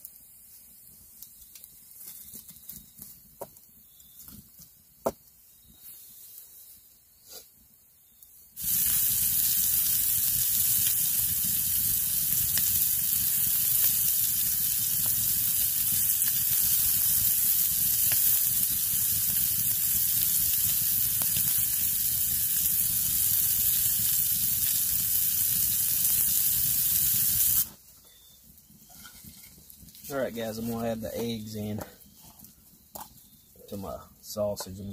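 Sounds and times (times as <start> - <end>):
sausage sizzling in a skillet: 8.6 - 27.9, 28.6 - 33.4.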